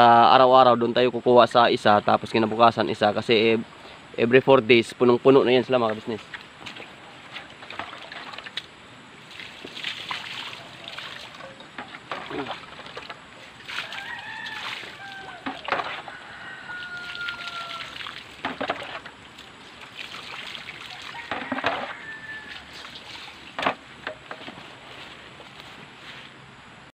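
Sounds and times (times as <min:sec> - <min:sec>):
water splashing onto mud: 0:09.3 - 0:16.1, 0:16.8 - 0:23.8.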